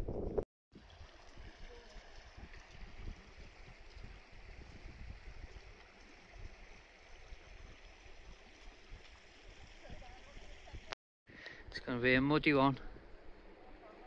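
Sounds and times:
stream water rushing: 0.8 - 11.0.

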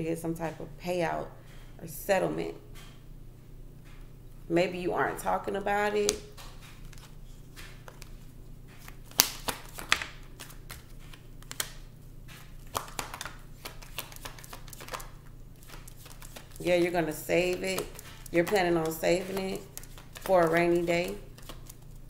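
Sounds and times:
cards being shuffled: 6.0 - 22.0.

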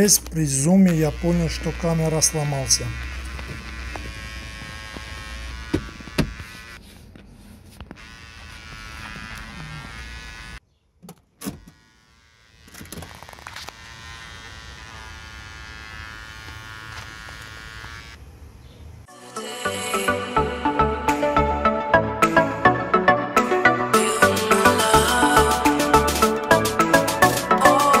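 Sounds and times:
electrical buzz with whine: 0.0 - 6.8, 7.8 - 10.6, 11.4 - 19.0.

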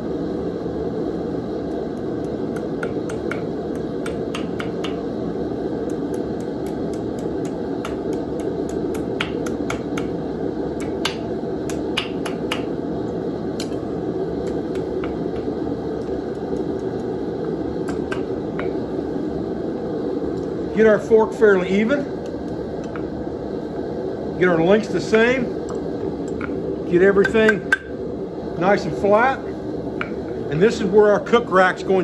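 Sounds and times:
steady rushing noise: 0.0 - 32.0
hammer striking steel on anvil: 2.5 - 5.1, 6.4 - 10.2, 10.8 - 12.7, 17.8 - 18.8, 27.2 - 27.9.

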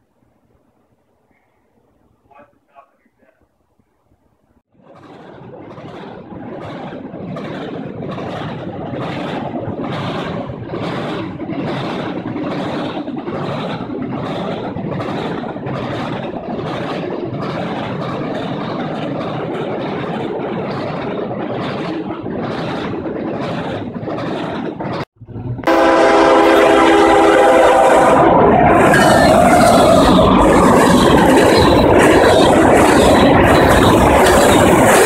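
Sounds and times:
freight train rumble and rattle: 4.7 - 35.0
train wheels clacking: 4.8 - 25.1, 28.7 - 35.0.

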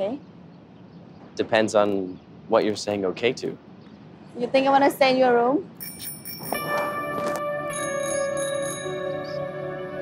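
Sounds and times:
shimmering bell-like chime music: 5.8 - 9.7.

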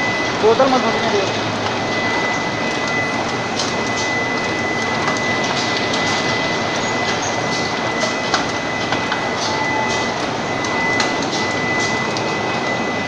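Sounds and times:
constant high whine: 0.0 - 13.0
filling machine mechanical din: 0.0 - 13.0.

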